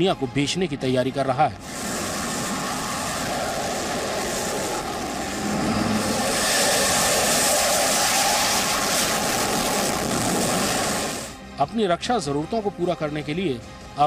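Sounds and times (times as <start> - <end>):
jet engine roar: 1.6 - 11.4.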